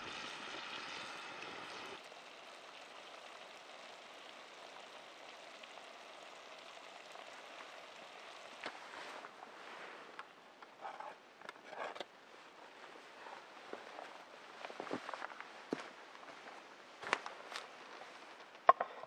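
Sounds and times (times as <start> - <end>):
coals ticking: 0.0 - 9.4
wood fire burning: 0.0 - 16.3.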